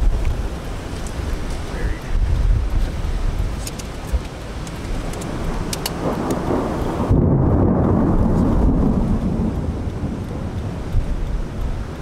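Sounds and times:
raindrop ticks: 0.0 - 12.0
steady rain: 0.0 - 12.0
thunder rumbling: 0.0 - 12.0.

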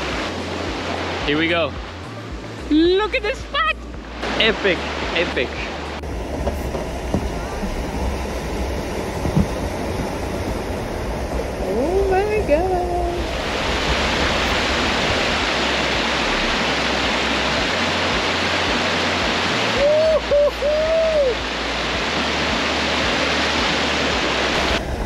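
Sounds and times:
river water rushing over rocks: 0.0 - 25.0
person whooping: 19.8 - 21.4.

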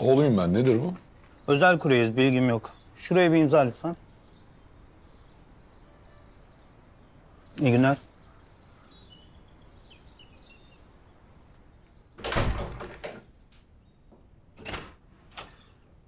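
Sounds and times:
birds chirping: 0.0 - 16.0
door closing with thud: 12.2 - 13.3, 14.6 - 15.8
door latch click: 14.6 - 15.8.

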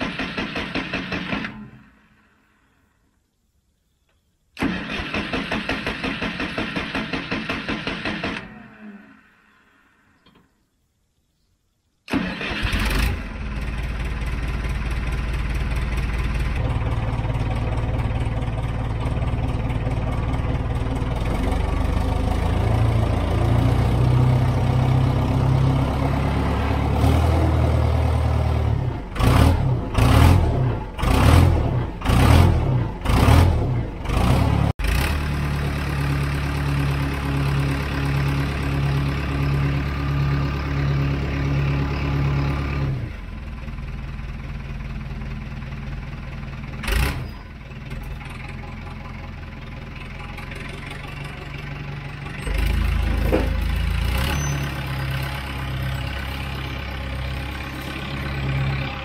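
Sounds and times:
diesel engine revving and idling: 12.1 - 59.0.

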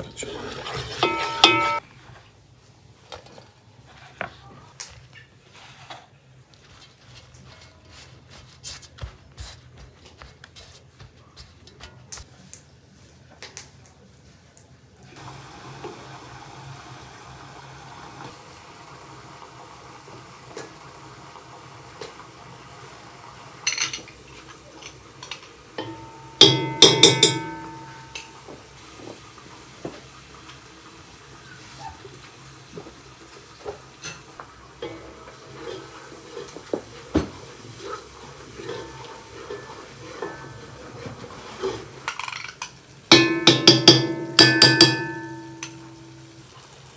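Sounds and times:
metal cookware clattering: 0.4 - 1.8, 23.6 - 24.2, 24.8 - 28.7, 34.0 - 46.7
utensils knocking: 0.9 - 1.8, 25.8 - 28.5, 42.2 - 46.4
food sizzling in oil: 15.2 - 46.9.

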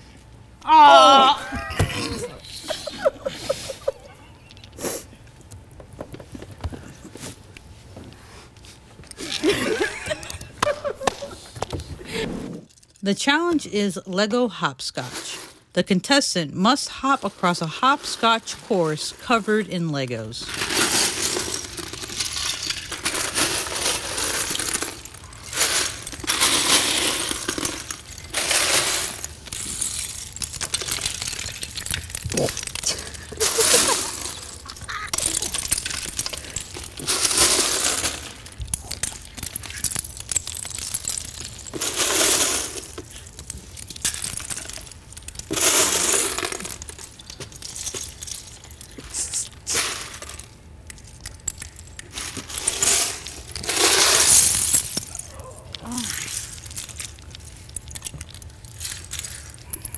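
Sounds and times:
plastic bricks clattering: 9.0 - 11.9, 20.2 - 59.9.

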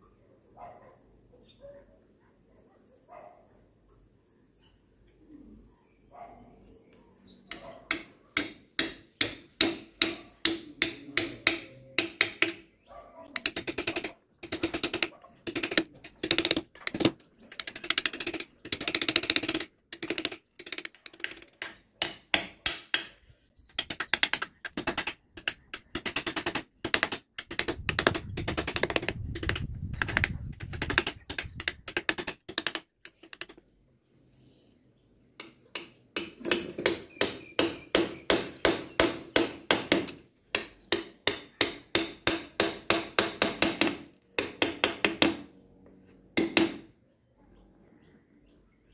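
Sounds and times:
mallet striking chisel into wood: 7.9 - 12.6, 13.4 - 23.2, 23.8 - 33.6, 35.4 - 45.5, 46.4 - 46.9.

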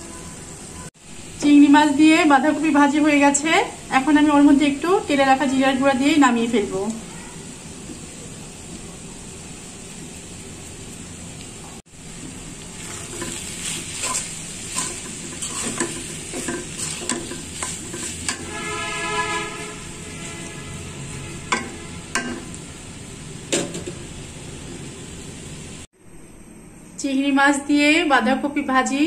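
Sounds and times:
food sizzling: 0.0 - 26.0
metal spatula scraping pan: 12.8 - 22.6
spatula knocking on pan: 21.5 - 22.6.

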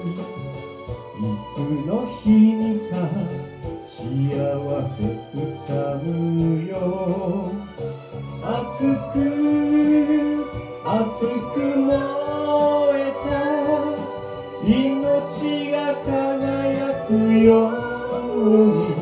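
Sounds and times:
live band accompaniment: 0.0 - 19.0
vocalist singing long held notes: 8.4 - 19.0.

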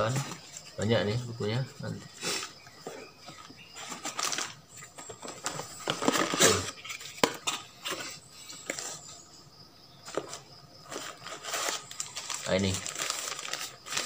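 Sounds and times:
paper and cardboard rustling: 0.0 - 9.2, 10.0 - 14.0.

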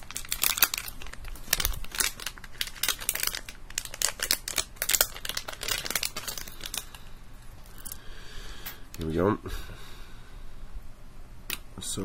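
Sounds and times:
plastic packaging crinkling: 0.0 - 8.0.

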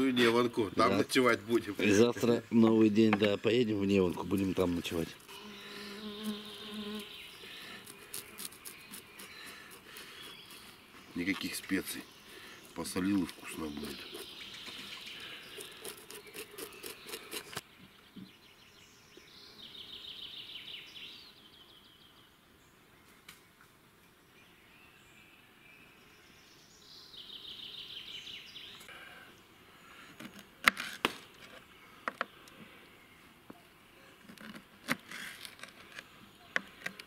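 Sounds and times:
scratchy scraping: 4.0 - 11.6, 13.2 - 17.6, 34.1 - 36.0.

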